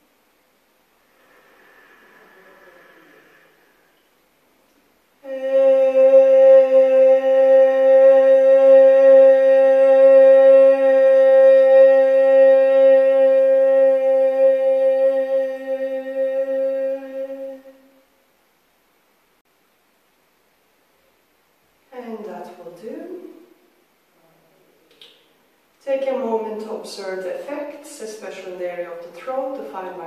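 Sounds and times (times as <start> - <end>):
woman chanting a long vowel: 5.2 - 17.9, 25.8 - 30.0.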